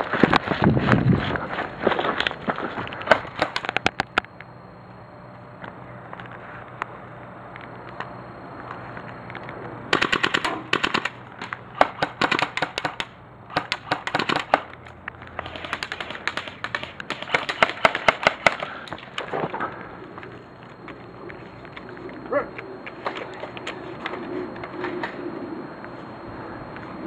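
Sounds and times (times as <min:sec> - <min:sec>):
airsoft guns firing bursts: 0:09.9 - 0:11.2, 0:11.8 - 0:14.7, 0:15.4 - 0:18.8.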